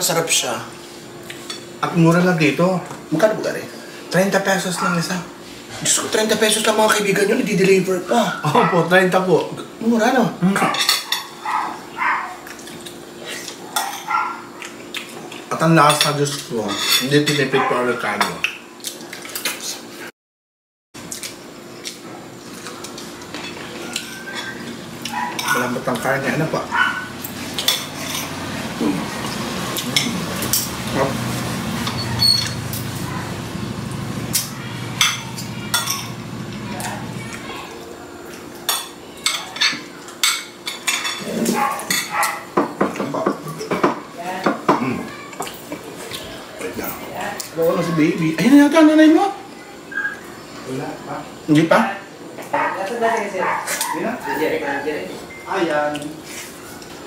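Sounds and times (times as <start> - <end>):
cutlery clinking on plates: 10.6 - 11.6, 12.4 - 19.7, 22.6 - 28.5, 34.4 - 36.6, 38.6 - 46.2
indistinct voices: 23.2 - 38.1.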